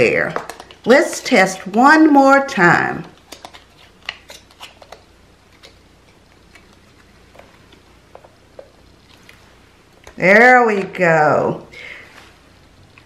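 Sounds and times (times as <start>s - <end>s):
plastic clicks and taps: 0.3s - 0.9s.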